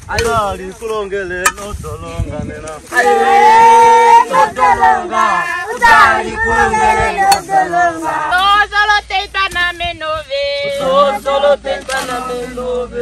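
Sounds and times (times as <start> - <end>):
group singing work song: 2.7 - 13.0.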